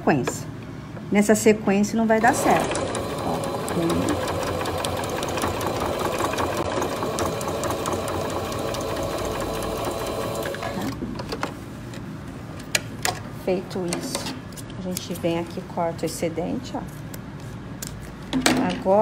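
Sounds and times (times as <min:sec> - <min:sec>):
sewing machine stitching: 0:02.2 - 0:11.0.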